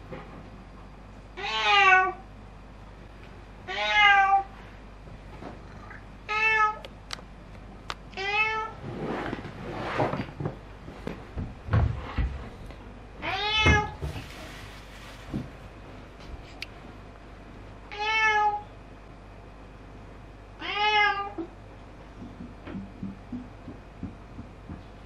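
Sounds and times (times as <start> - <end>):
cat meowing: 1.4 - 2.2, 3.7 - 4.5, 17.9 - 18.6, 20.6 - 21.5.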